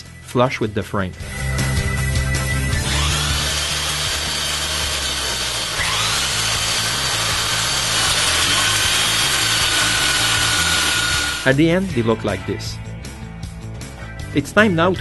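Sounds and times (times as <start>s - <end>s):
electric sander on wood: 2.8s - 11.6s.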